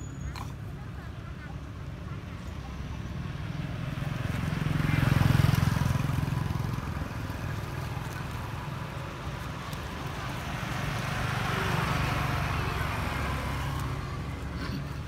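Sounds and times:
vehicle engine passing by: 0:03.0 - 0:14.7.

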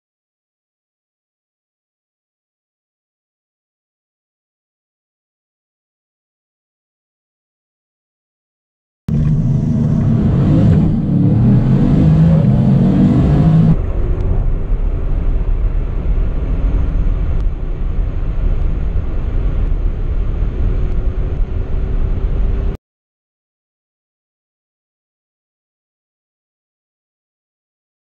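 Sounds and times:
car accelerating hard: 0:09.1 - 0:22.8
road and wind noise: 0:09.1 - 0:22.8.

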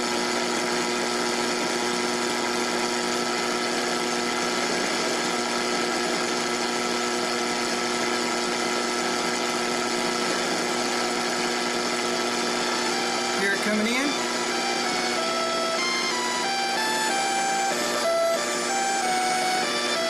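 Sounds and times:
steady buzzing tone: 0:00.0 - 0:20.0
radio static: 0:12.5 - 0:15.2.

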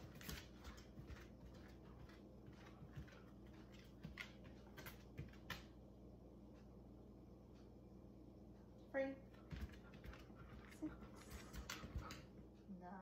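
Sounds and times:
dog claws clicking on hard floor: 0:00.0 - 0:05.8, 0:09.3 - 0:12.4.

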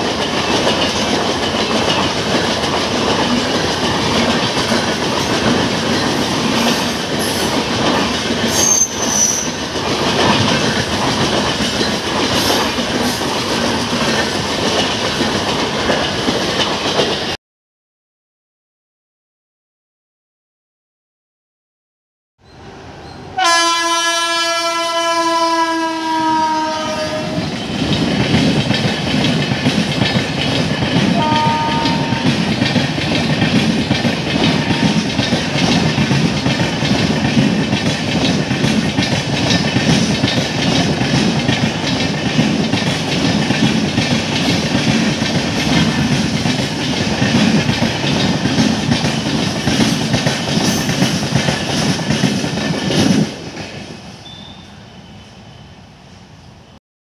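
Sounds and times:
train rumble: 0:00.0 - 0:17.4, 0:22.5 - 0:56.4
wheels clacking over rail joints: 0:00.0 - 0:17.4, 0:25.4 - 0:54.1
locomotive horn blast: 0:23.4 - 0:27.4, 0:31.2 - 0:32.3.

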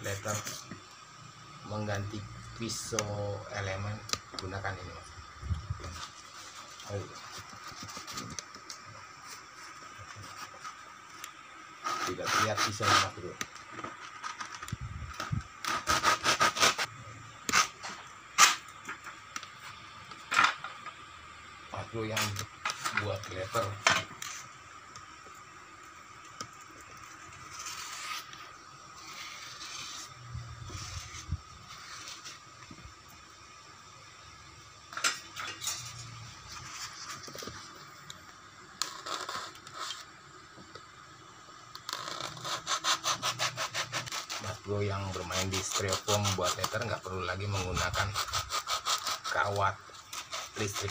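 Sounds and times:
styrofoam scraping and squeaking: 0:05.8 - 0:10.9, 0:11.8 - 0:16.9, 0:27.0 - 0:32.4, 0:38.8 - 0:40.1, 0:41.8 - 0:50.9.

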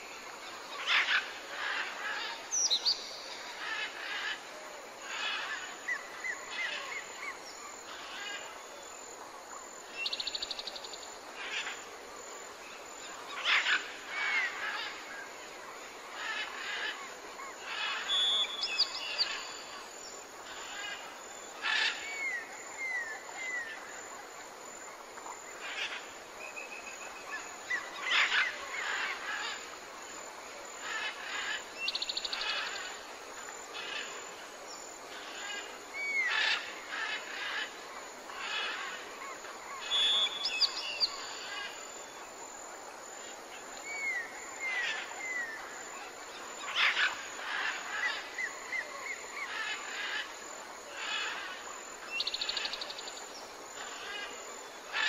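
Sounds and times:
bird calls and chirps: 0:17.6 - 0:19.8, 0:38.3 - 0:41.9.

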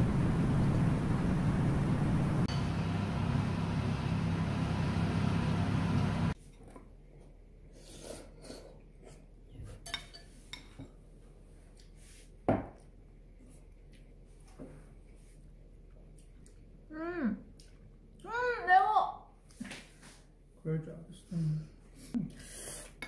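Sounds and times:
loud rushing hum: 0:00.0 - 0:06.4.

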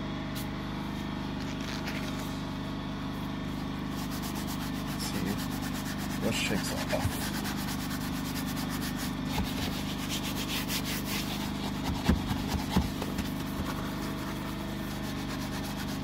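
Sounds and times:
steady low hum: 0:00.0 - 0:16.0
brush scrubbing: 0:03.5 - 0:16.0.

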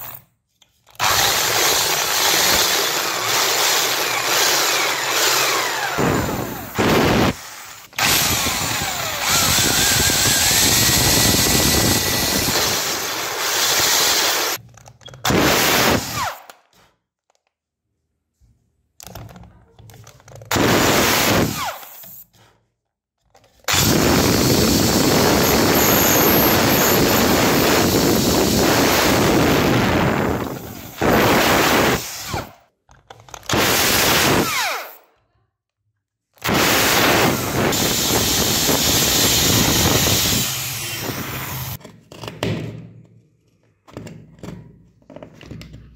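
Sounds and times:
electric drill boring into board: 0:01.0 - 0:14.6, 0:15.3 - 0:16.5, 0:20.5 - 0:22.0, 0:23.7 - 0:32.6, 0:33.5 - 0:35.0, 0:36.4 - 0:41.8.

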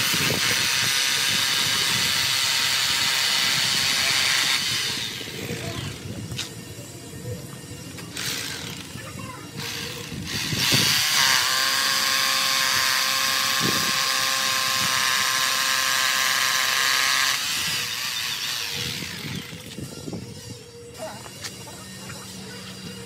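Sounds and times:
electric drill boring into tile: 0:00.0 - 0:06.0, 0:08.1 - 0:08.9, 0:09.6 - 0:19.8.

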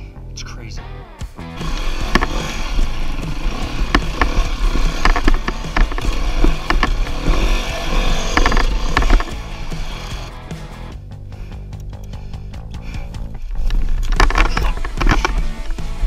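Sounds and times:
dirt bike engine revving: 0:01.4 - 0:11.0, 0:12.8 - 0:16.0
sharp knocks and clatter: 0:01.6 - 0:10.3, 0:13.2 - 0:16.0.

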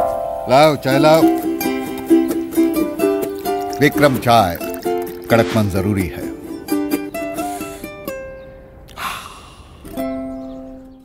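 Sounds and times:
plucked string jingle: 0:00.0 - 0:08.4.

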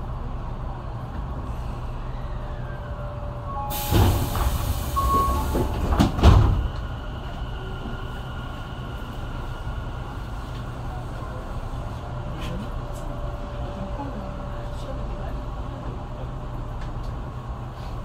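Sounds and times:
hissing rush of passing train: 0:03.6 - 0:13.6.

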